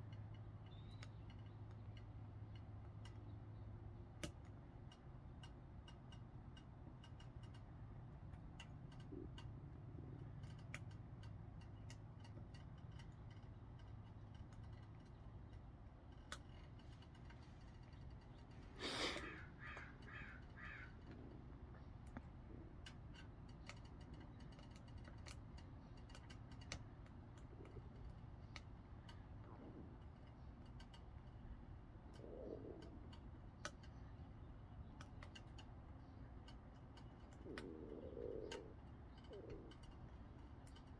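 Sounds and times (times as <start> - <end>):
low steady rumble: 0.0 - 40.9
bird harsh call: 18.8 - 21.0.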